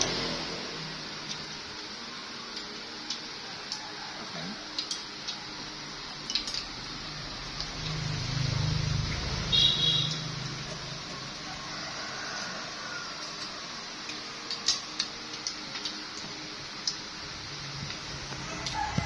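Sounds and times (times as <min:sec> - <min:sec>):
chopsticks clicking on plates: 0:04.7 - 0:05.4.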